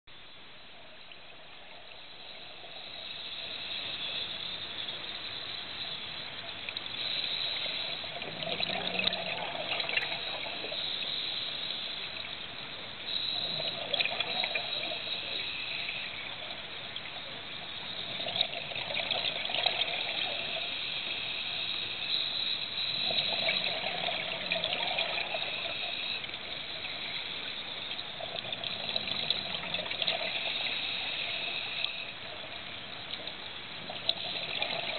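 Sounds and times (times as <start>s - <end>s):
regulator hiss: 0.1s - 34.9s
exhaled bubbles gurgling: 0.8s - 34.9s.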